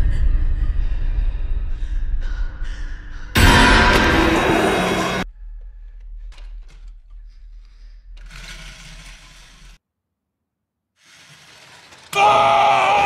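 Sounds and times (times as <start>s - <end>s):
low rumble: 0.0s - 8.8s
loud jump-scare burst: 3.4s - 5.2s.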